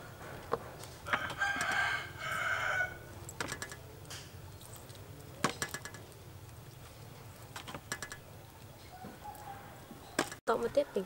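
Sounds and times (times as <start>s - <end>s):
rooster crowing: 1.0s - 3.1s, 8.9s - 10.1s.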